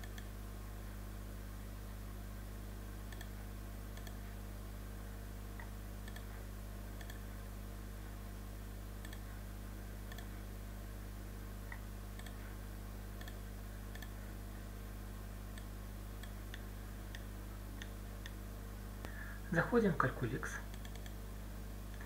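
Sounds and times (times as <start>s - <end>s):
computer mouse clicking: 0.0s - 0.3s, 3.1s - 4.2s, 5.6s - 6.3s, 7.0s - 7.2s, 9.0s - 9.2s, 10.1s - 10.3s, 11.7s - 12.4s, 13.2s - 14.2s, 20.7s - 21.2s
low electrical hum: 0.0s - 22.0s.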